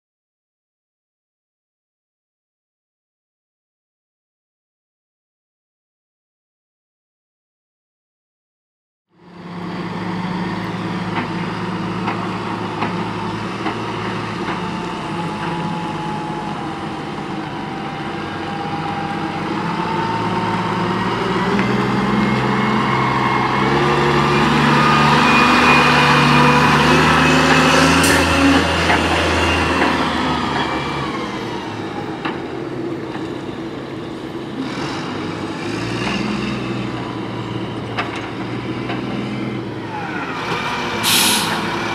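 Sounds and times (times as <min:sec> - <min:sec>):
garbage truck diesel engine: 0:09.2 - 0:41.9
rising engine whine: 0:09.2 - 0:41.9.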